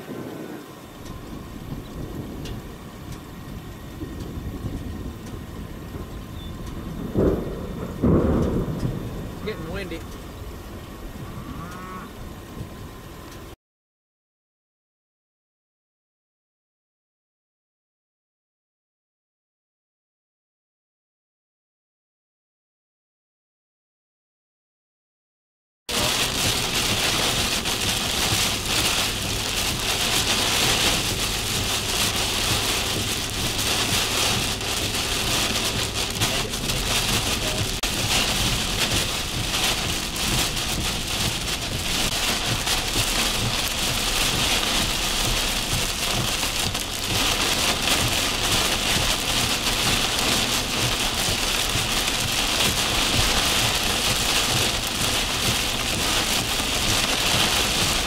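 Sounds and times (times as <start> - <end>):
heavy rain on vehicle roof: 0.0 - 11.3, 12.1 - 13.6, 25.9 - 58.0.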